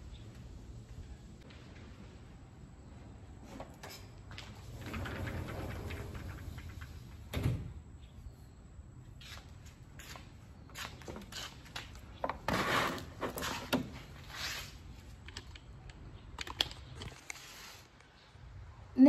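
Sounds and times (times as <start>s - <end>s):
rustles and scrapes on tiled floor: 9.2s - 15.2s, 16.8s - 18.3s.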